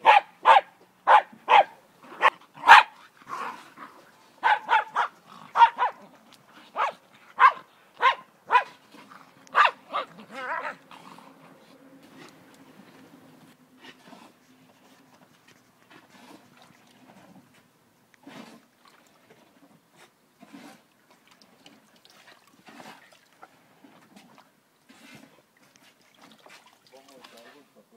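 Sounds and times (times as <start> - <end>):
dog barking: 0.0 - 3.0, 4.4 - 6.0, 6.8 - 8.8, 9.5 - 10.8.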